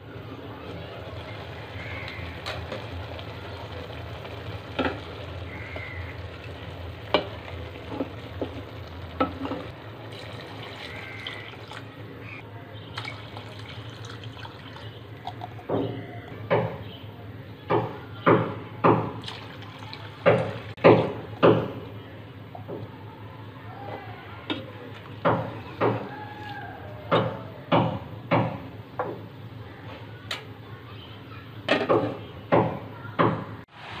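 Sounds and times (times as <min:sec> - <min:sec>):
water pouring into pot: 0:01.0 - 0:12.0, 0:12.9 - 0:15.6, 0:19.2 - 0:20.8.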